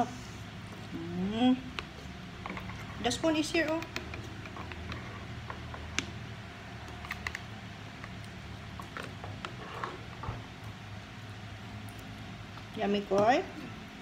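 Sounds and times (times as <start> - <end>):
steady low hum: 0.0 - 14.0
spoons tapping plastic bowls: 3.3 - 6.1.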